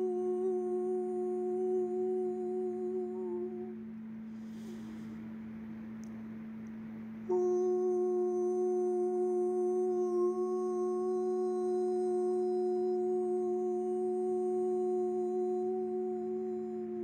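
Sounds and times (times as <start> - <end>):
low continuous drone: 0.0 - 17.0
person singing held tone: 7.3 - 17.0.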